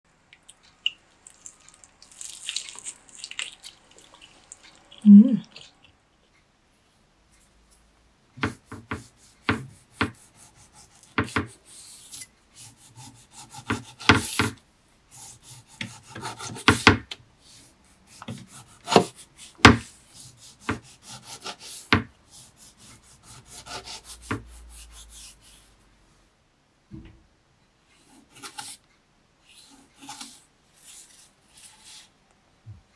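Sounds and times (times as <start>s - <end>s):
knife slicing tomato: 8.4s - 17.1s, 18.1s - 25.6s.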